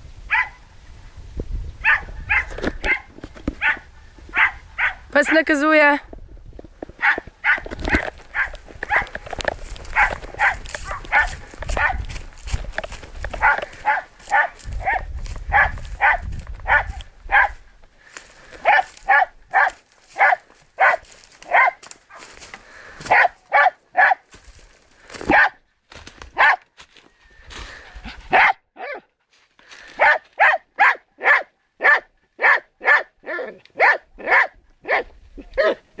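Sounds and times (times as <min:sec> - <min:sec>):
dog barking: 0:00.3 - 0:00.6, 0:01.8 - 0:05.4, 0:07.0 - 0:07.7, 0:08.3 - 0:09.2, 0:09.9 - 0:12.1, 0:13.4 - 0:17.6, 0:18.6 - 0:22.2, 0:23.1 - 0:24.2, 0:25.3 - 0:25.6, 0:26.4 - 0:26.6, 0:28.3 - 0:29.1, 0:30.0 - 0:35.8.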